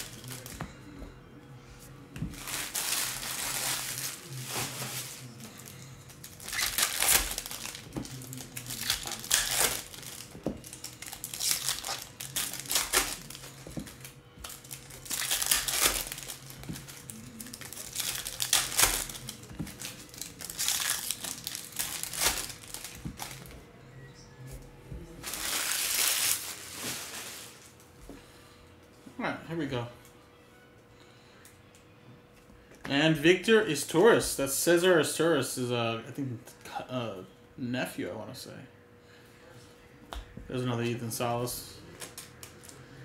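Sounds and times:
foil wrappers crinkling: 0:00.0 - 0:00.6, 0:02.3 - 0:23.5, 0:25.2 - 0:27.8.

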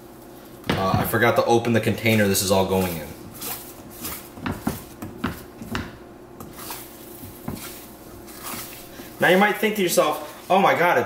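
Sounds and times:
spatula scraping frying pan: 0:02.1 - 0:05.0, 0:06.4 - 0:10.6.

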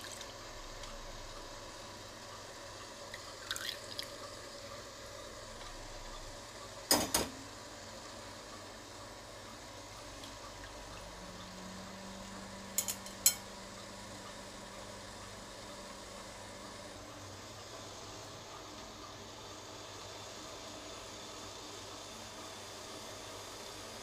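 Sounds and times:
liquid dripping through strainer: 0:03.1 - 0:04.3
utensils clinking: 0:12.8 - 0:13.4.

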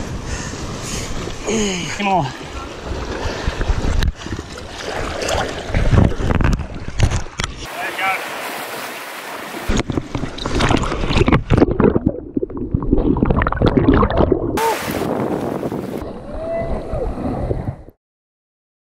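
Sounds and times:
water sloshing around camera: 0:02.4 - 0:16.1
surf washing over rocks: 0:07.6 - 0:10.8, 0:14.6 - 0:16.4
underwater gurgles: 0:09.6 - 0:16.2.

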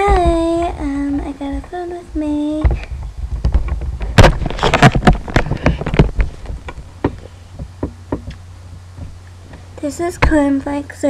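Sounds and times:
laptop handling knocks and scrapes: 0:03.5 - 0:07.3.

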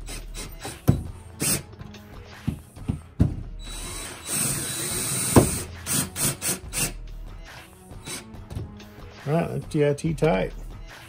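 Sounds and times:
cordless drill driving screws: 0:03.6 - 0:07.0, 0:08.0 - 0:08.2.

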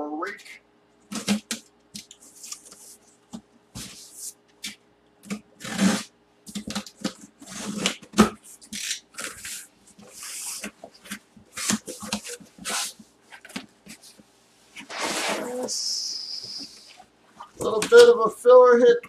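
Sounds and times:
cardboard scraping and rustling: 0:03.7 - 0:04.4, 0:05.3 - 0:15.6.

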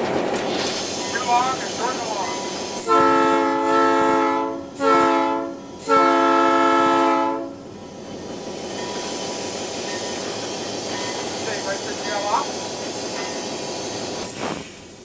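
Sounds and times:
locomotive engine running: 0:00.0 - 0:14.2
locomotive air horn blasts: 0:02.8 - 0:07.6.

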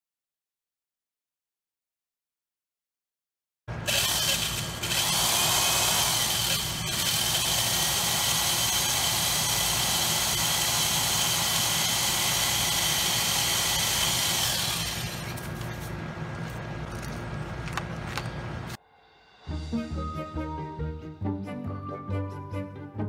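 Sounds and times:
power drill running: 0:03.7 - 0:15.7.

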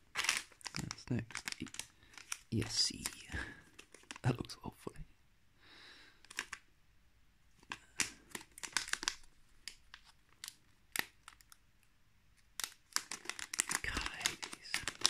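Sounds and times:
plastic bag crinkling: 0:00.0 - 0:04.4, 0:06.2 - 0:06.6, 0:07.6 - 0:11.6, 0:12.4 - 0:15.0.

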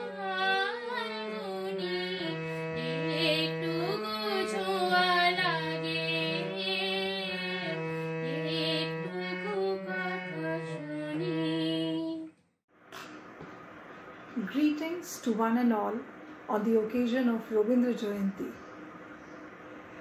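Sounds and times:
harmonium: 0:00.0 - 0:12.0
woman singing: 0:00.0 - 0:12.4.

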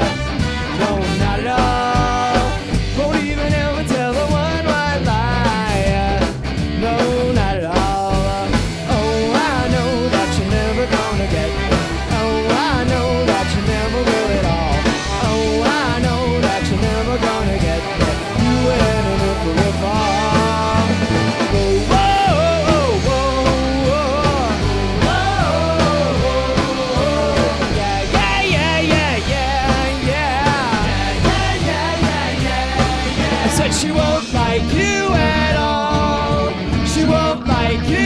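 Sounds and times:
trumpet and trombone lines: 0:00.0 - 0:02.6
rock band playing live: 0:00.0 - 0:38.0.

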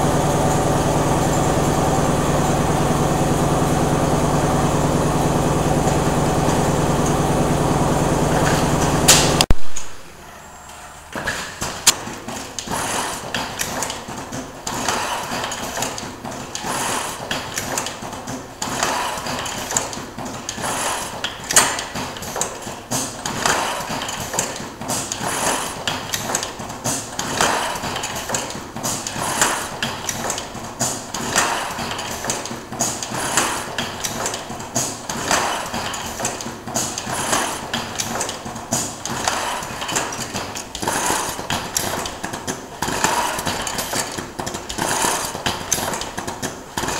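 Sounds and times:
machine clattering with clicks: 0:00.0 - 0:10.0, 0:11.1 - 0:46.9.

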